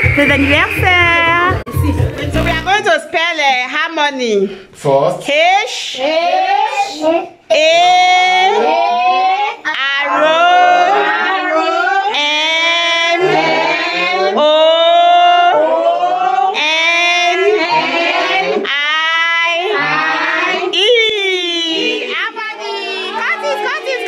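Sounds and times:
children singing: 8.4 - 24.0.

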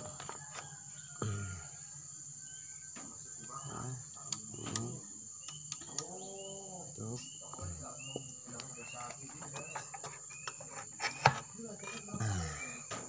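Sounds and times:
insect chirring: 0.0 - 13.0
faint voices: 3.0 - 5.2, 11.5 - 13.0
sharp clicks: 4.3 - 6.1.

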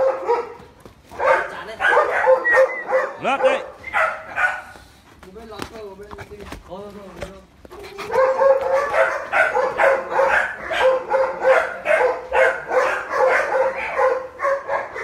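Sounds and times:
dog barking rapidly: 0.0 - 4.8, 8.0 - 15.0.

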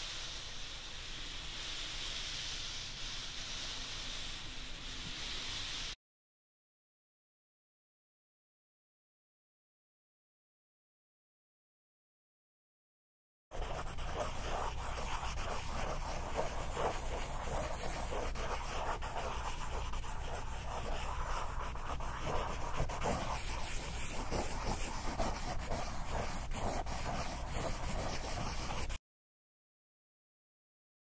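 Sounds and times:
drawing tool scratching paper: 13.5 - 29.0.

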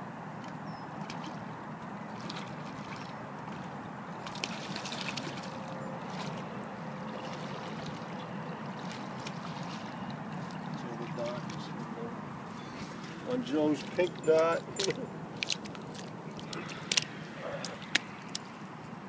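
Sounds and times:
boots splashing through water: 0.4 - 11.8.

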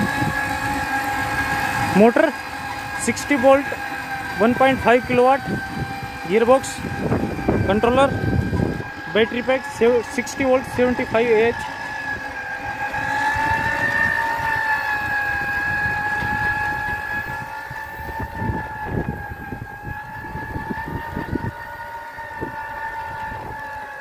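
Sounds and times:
electric motor whining: 0.0 - 24.0
tines crunching dry soil: 0.0 - 24.0.

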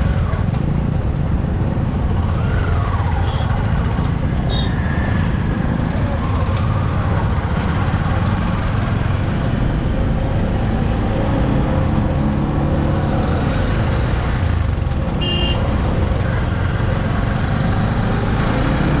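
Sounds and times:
motorcycle engines in traffic: 0.0 - 19.0
short high horn toot: 15.2 - 15.6.

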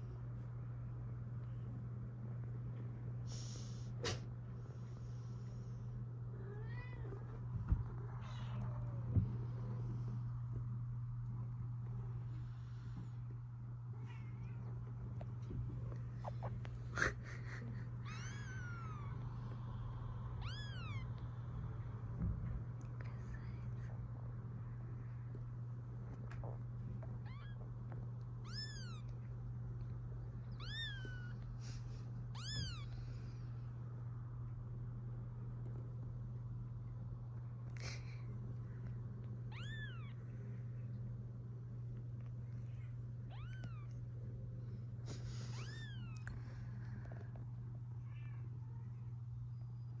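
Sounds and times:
steady low hum: 0.0 - 50.0
kittens mewing: 16.1 - 19.6, 20.3 - 21.3, 28.4 - 29.1, 30.4 - 33.0, 39.5 - 40.3, 42.7 - 44.0, 45.1 - 46.6.

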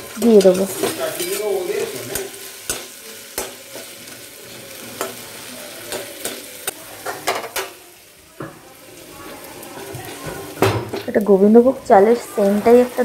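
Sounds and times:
food sizzling in oil: 0.0 - 13.0.

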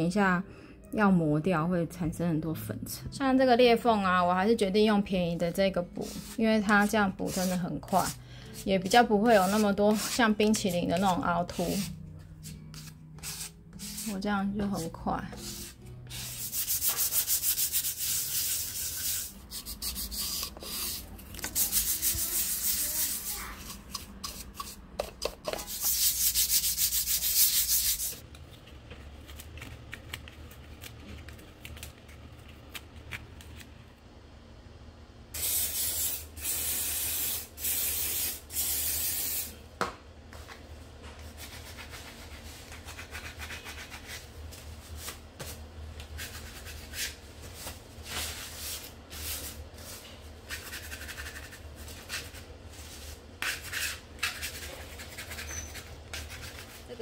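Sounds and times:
brush sweeping plaster wall: 6.0 - 14.2, 14.8 - 24.8, 25.5 - 28.2, 41.2 - 57.0
aerosol spray can bursts: 35.4 - 39.5.

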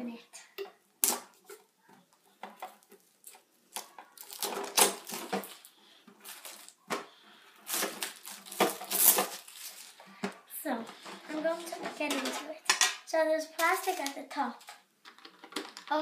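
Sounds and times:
packaging rustling and tearing: 2.5 - 10.2.

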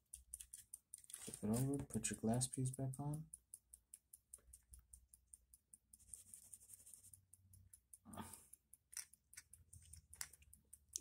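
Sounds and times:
mechanical clock ticking: 0.0 - 11.0
rustle of handling: 1.0 - 1.8.

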